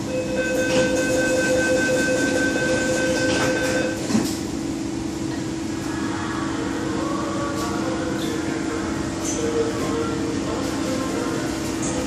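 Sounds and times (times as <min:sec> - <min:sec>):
train hum: 0:00.0 - 0:12.0
train doors shutting: 0:02.0 - 0:04.5.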